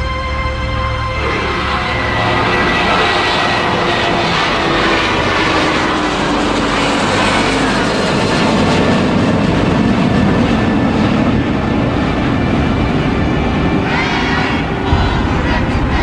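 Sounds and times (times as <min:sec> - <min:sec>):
jet engine roar: 0:00.0 - 0:16.0.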